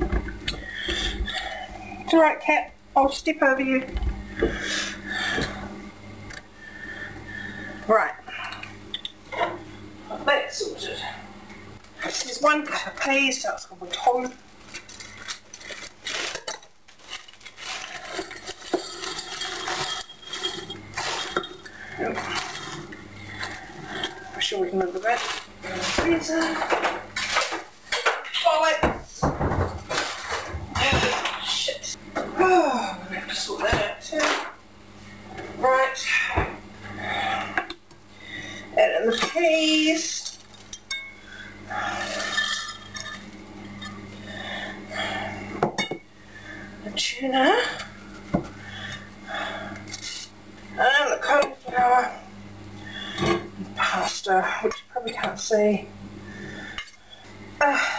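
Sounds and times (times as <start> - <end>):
steady low hum: 0.0 - 57.9
frozen peas clinking into glass jug: 14.8 - 22.8.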